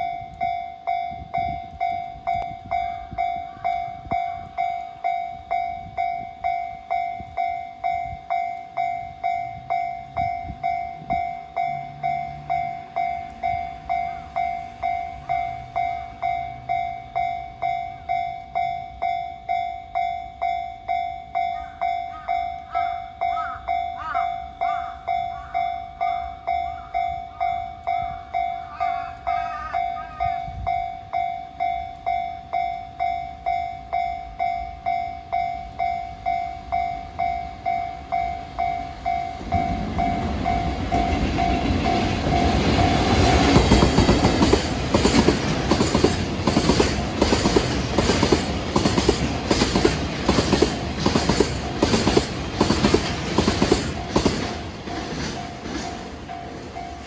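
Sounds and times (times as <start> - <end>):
level-crossing warning bell: 0.0 - 57.0
train wheels clacking: 30.2 - 57.0.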